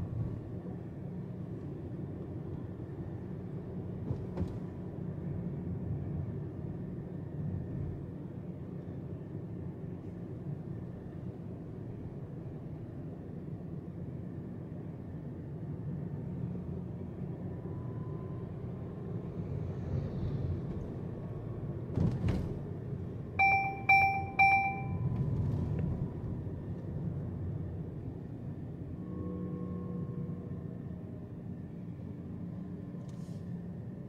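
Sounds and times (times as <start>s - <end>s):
car road and engine rumble: 0.0s - 34.0s
short electronic beeps: 23.4s - 25.1s.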